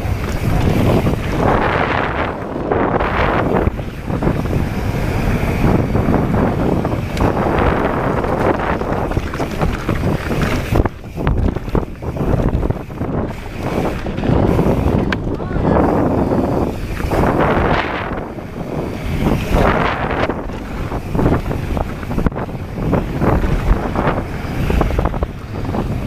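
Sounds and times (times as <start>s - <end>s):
bike knocks and rattles: 0.0s - 26.0s
bike tyres rolling on dirt: 0.0s - 26.0s
wind on microphone: 0.0s - 26.0s.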